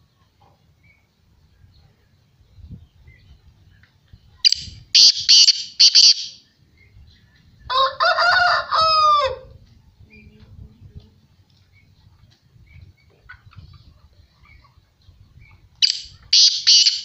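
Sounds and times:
bird calling harshly: 0:04.4 - 0:06.4, 0:15.8 - 0:17.0.

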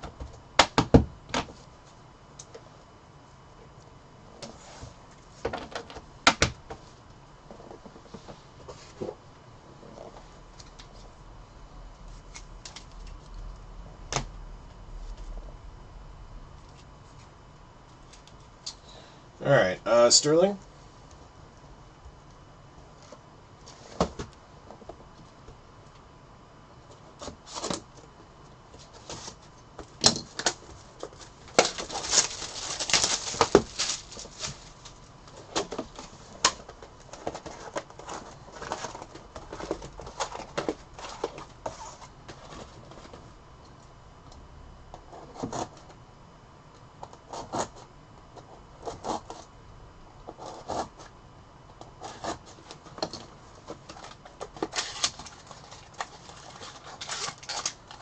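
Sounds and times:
cards and wrappers clicking and rustling: 0:28.8 - 0:43.2, 0:52.0 - 0:58.0.

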